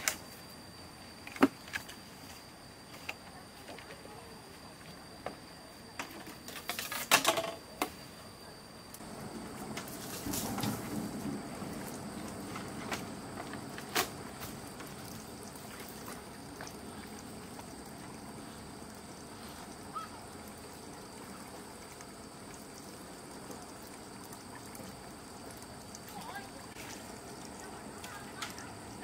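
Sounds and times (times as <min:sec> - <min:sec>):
stream water trickling: 0:09.0 - 0:29.0.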